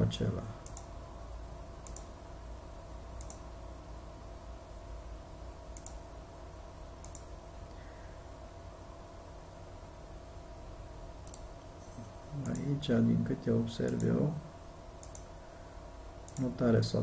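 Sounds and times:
faint low hum: 0.0 - 17.0
computer mouse clicks: 0.6 - 0.9, 1.8 - 2.1, 3.2 - 3.5, 5.7 - 6.0, 7.0 - 7.3, 11.2 - 11.5, 12.4 - 12.7, 13.8 - 14.2, 15.0 - 15.3, 16.3 - 16.5.

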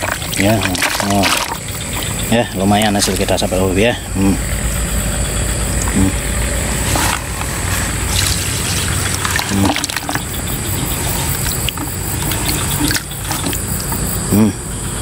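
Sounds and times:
sharp knocks of bucket and net: 0.0 - 3.4, 6.9 - 10.4
water sloshing in a bucket: 0.0 - 4.1, 5.7 - 14.2
low engine hum: 0.0 - 15.0.

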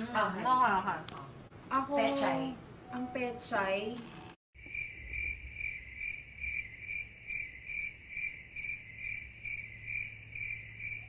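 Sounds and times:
crickets chirping: 4.6 - 11.0.

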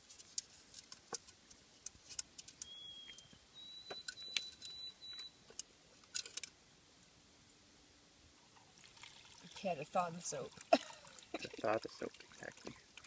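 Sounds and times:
thin high whistles: 2.6 - 5.4.

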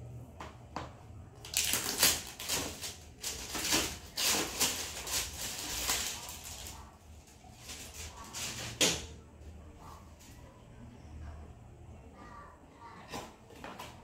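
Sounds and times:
plastic bag crinkling: 1.4 - 8.8.

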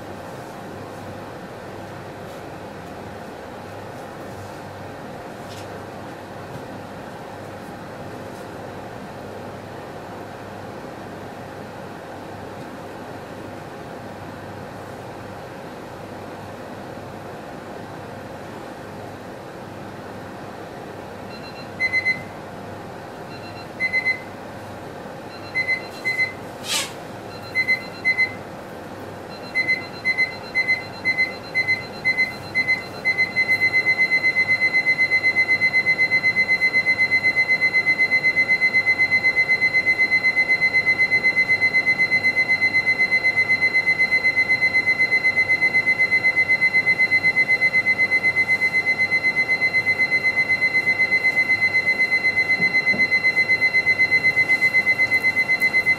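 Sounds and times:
electronic alarm beeping: 21.3 - 22.3, 23.2 - 24.3, 25.3 - 26.4, 27.3 - 28.4, 29.3 - 55.9.

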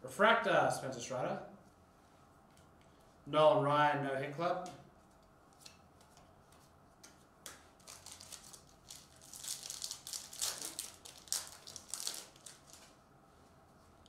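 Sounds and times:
foil wrapper tearing and crinkling: 7.8 - 13.0.

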